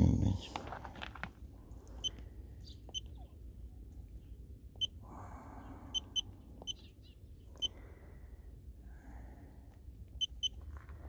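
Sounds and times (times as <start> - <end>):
battery tester beeps: 2.9 - 3.2, 4.8 - 5.0, 6.0 - 6.8, 10.2 - 10.6.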